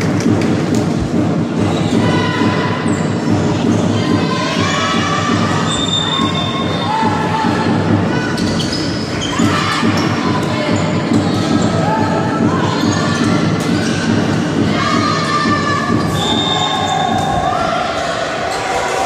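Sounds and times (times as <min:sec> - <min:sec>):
hubbub of spectators: 0:00.0 - 0:19.0
shoes squeaking on floor: 0:05.6 - 0:06.9, 0:08.2 - 0:14.2, 0:15.9 - 0:17.4.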